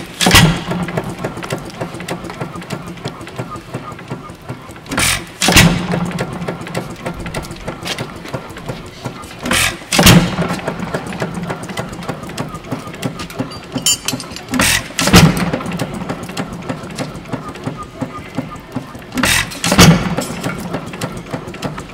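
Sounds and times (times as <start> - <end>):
gas engine firing bangs: 0.0 - 2.1, 4.9 - 6.5, 9.4 - 11.4, 14.5 - 16.0, 19.2 - 20.6
engine low hum: 0.0 - 21.9.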